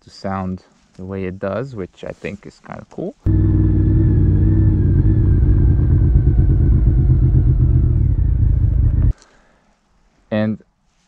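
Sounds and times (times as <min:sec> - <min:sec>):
motorcycle exhaust at low revs: 0:03.3 - 0:09.2.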